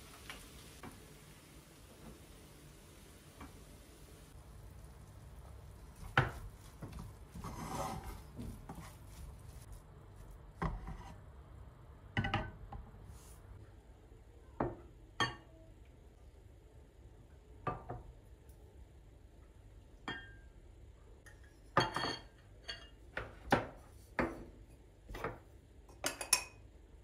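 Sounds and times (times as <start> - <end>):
wooden spatula scraping pan: 5.9 - 9.8, 10.6 - 11.2
wood knocking on pan: 6.0 - 7.6.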